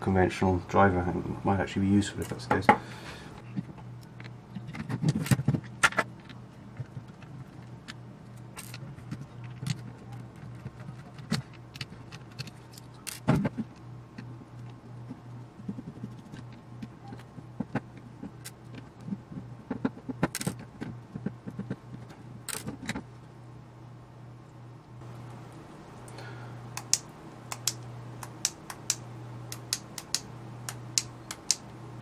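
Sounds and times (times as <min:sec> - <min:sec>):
steady low hum: 0:00.0 - 0:32.0
metallic clicks and rattles: 0:04.1 - 0:14.8.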